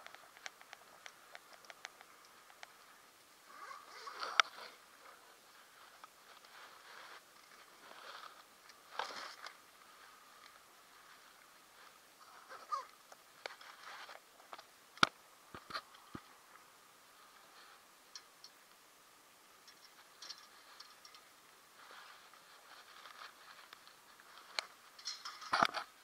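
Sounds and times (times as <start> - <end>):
small clicks: 0.0 - 2.9.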